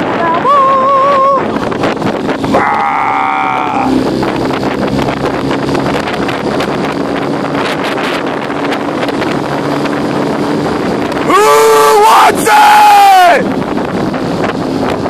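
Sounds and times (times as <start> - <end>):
outboard motor running: 0.0 - 15.0
wind noise on microphone: 0.0 - 15.0
person yelling: 0.2 - 1.5, 2.5 - 4.0, 11.2 - 13.5.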